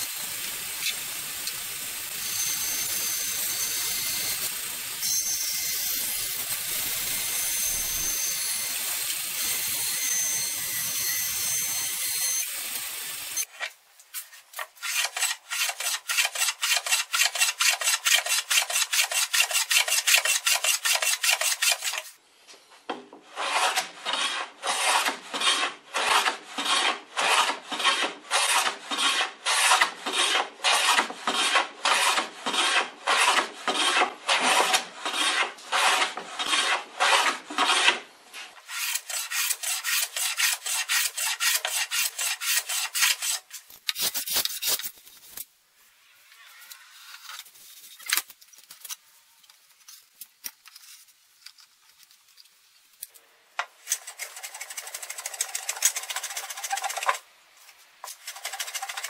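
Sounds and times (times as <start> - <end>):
hand plane shaving wood: 14.8 - 22.1, 23.3 - 38.0, 38.6 - 43.4, 53.9 - 57.2, 58.0 - 59.0.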